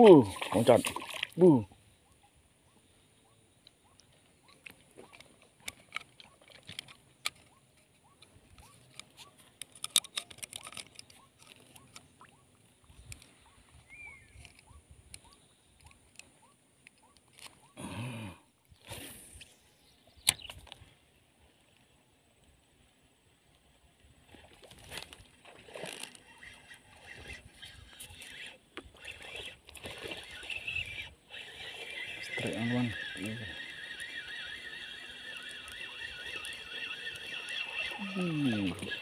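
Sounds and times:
fish splashing in water: 0:00.3 - 0:01.4
fishing line clicks: 0:03.6 - 0:13.6, 0:14.3 - 0:17.8, 0:20.2 - 0:20.8, 0:25.0 - 0:39.0.

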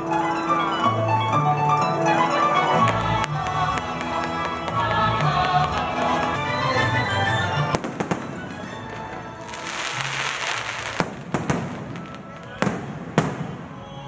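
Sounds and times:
background music: 0:00.0 - 0:14.0
fireworks bangs: 0:02.5 - 0:14.0
fireworks hissing and crackling: 0:02.8 - 0:06.6, 0:07.8 - 0:13.8.

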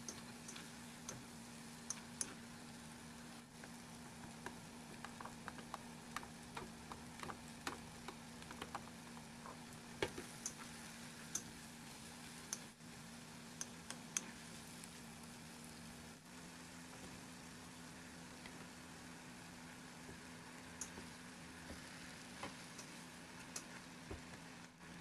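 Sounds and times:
food sizzling in a wok: 0:00.0 - 0:25.0.

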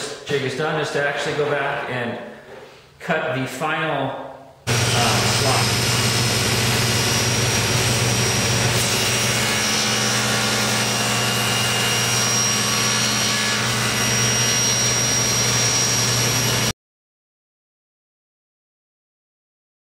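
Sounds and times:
table saw cutting: 0:04.7 - 0:16.7.

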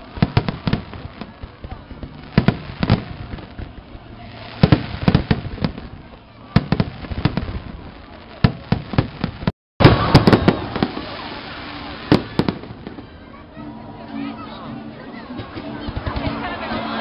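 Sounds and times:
fireworks bangs: 0:00.0 - 0:13.3.

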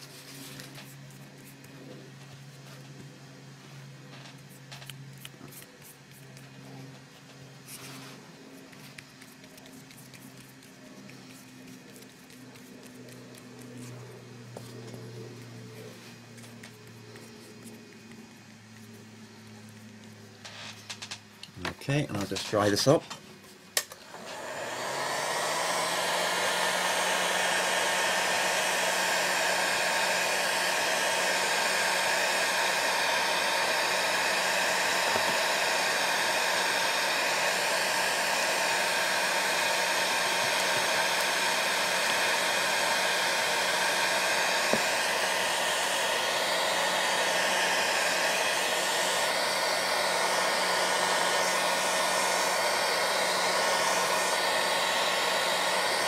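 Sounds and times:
heat gun blowing: 0:04.4 - 0:21.5, 0:23.7 - 0:56.0.

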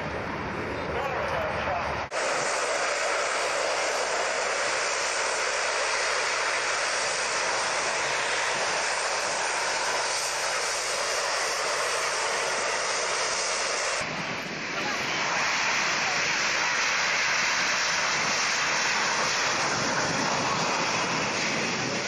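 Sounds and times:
turboprop engines running: 0:00.0 - 0:22.0.

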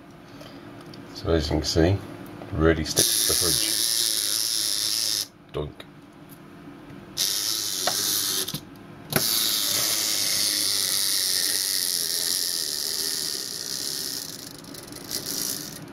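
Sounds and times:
toy motor click: 0:03.0 - 0:05.3, 0:07.2 - 0:08.6, 0:09.2 - 0:15.9
wind-up toy motor whirring: 0:03.0 - 0:05.3, 0:07.2 - 0:08.6, 0:09.2 - 0:15.9.

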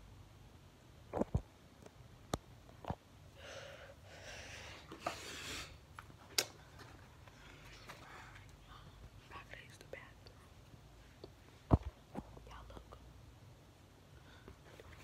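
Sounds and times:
breathy hiss: 0:03.4 - 0:05.9.

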